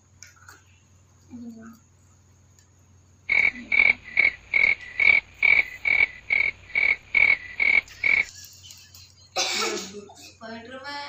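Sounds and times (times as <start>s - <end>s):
frog-like croaking: 3.3s - 8.3s.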